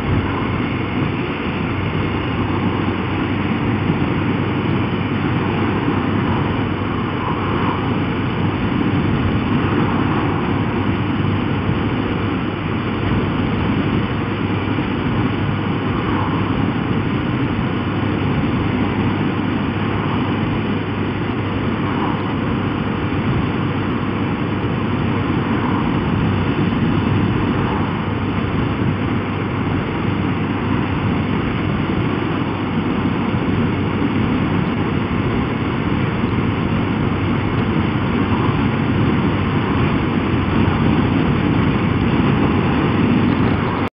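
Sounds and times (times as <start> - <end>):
motorcycle engine: 0.0 - 43.9
road noise: 0.0 - 43.9
wind rush: 0.0 - 43.9.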